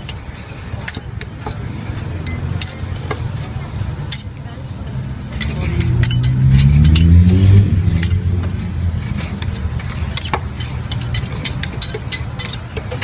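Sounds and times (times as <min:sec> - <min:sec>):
metal spatulas scraping on steel: 0:00.0 - 0:04.3, 0:05.2 - 0:13.0
vehicle passing: 0:03.3 - 0:11.5.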